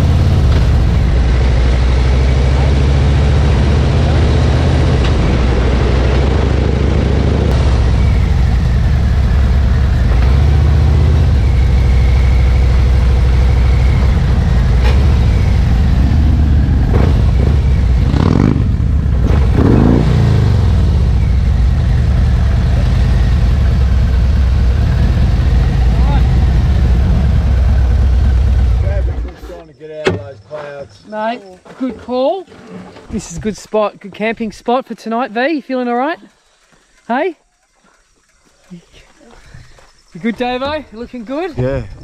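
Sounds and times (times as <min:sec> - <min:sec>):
motorcycle engine running: 0:00.0 - 0:29.4.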